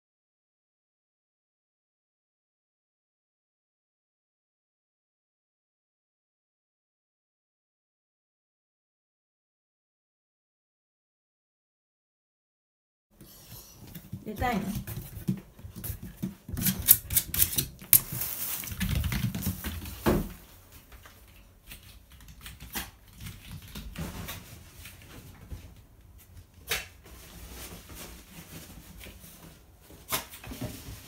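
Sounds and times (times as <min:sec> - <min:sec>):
dog claws scratching at door: 0:16.5 - 0:18.2
dog running off: 0:17.9 - 0:20.4.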